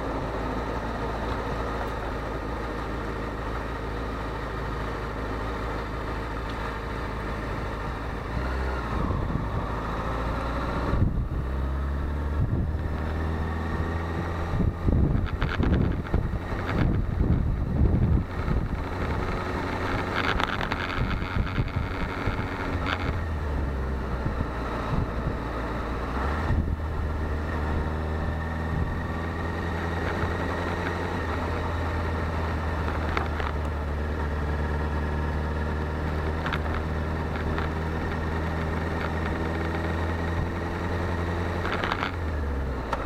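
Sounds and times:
motorcycle engine running: 0:00.0 - 0:43.0.

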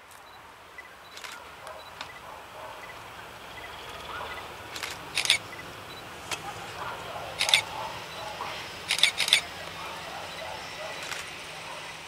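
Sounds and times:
diesel locomotive rumbling: 0:02.8 - 0:12.0
short sharp bursts: 0:04.2 - 0:05.7, 0:07.3 - 0:12.0.

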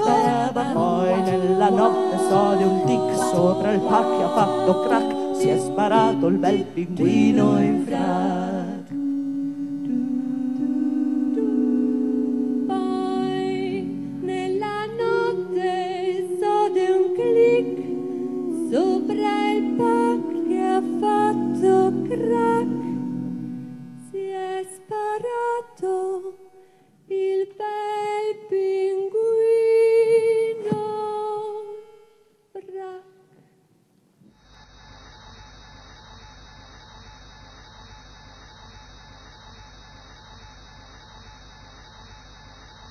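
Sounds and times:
hummed low vocal chords: 0:00.0 - 0:26.4
woman singing lead melody: 0:00.0 - 0:33.4.

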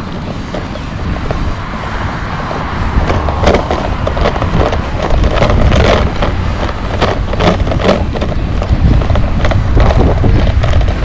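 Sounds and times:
wind buffeting microphone: 0:00.0 - 0:11.0
sharp knocks and rattles: 0:03.0 - 0:11.0.

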